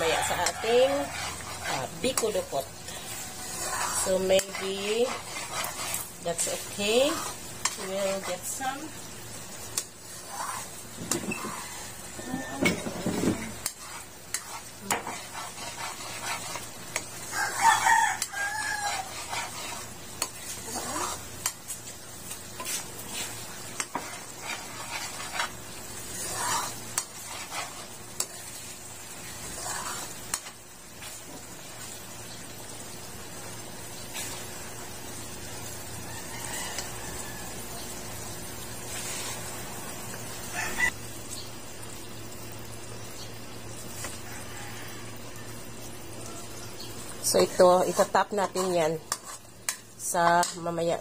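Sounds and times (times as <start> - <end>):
rooster crowing: 0.0 - 1.4, 11.3 - 12.9, 17.2 - 19.2, 35.9 - 37.8, 40.4 - 41.0, 44.2 - 46.7
spoon scraping a pan: 0.0 - 9.0, 9.6 - 32.0, 34.0 - 34.6, 36.0 - 37.4, 38.8 - 40.9, 47.2 - 51.0
boiling syrup sizzling: 0.0 - 51.0.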